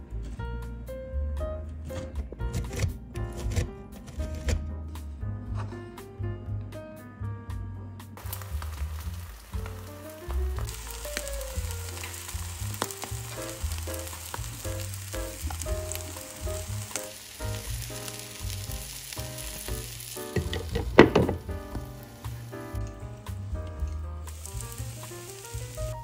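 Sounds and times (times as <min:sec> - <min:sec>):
background music: 0:00.0 - 0:26.0
oil sizzling in a pan: 0:08.2 - 0:26.0.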